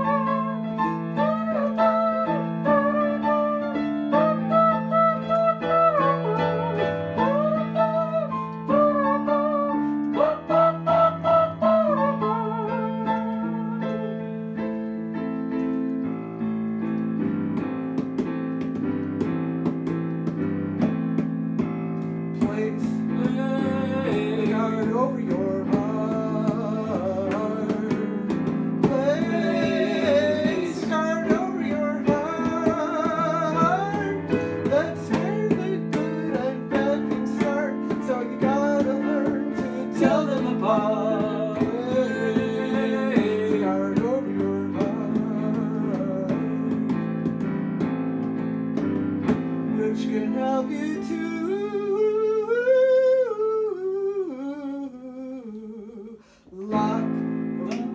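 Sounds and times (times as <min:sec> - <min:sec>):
harmonica melody: 0:00.0 - 0:14.7, 0:17.2 - 0:47.4
digital piano chords: 0:00.0 - 0:53.2, 0:56.5 - 0:57.9
acoustic guitar: 0:12.7 - 0:50.9.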